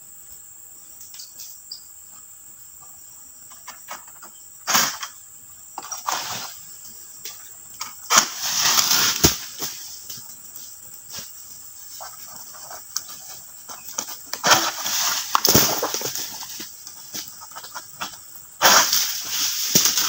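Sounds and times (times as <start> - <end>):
high insect drone: 0.0 - 20.0
palm fronds rustling and scraping: 3.5 - 5.2, 5.8 - 20.0.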